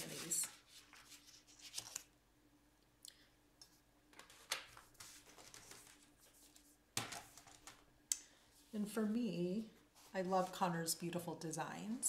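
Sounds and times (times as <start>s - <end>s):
paper and pencils rustling: 0.0s - 2.1s, 4.2s - 7.8s, 10.0s - 10.9s.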